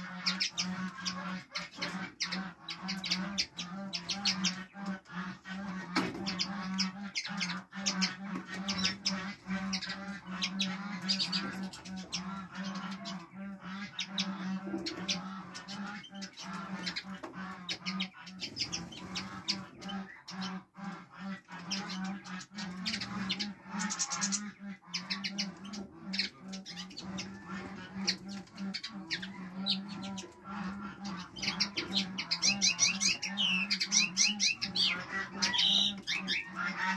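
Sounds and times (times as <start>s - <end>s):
finches chirping: 21.7s - 36.6s.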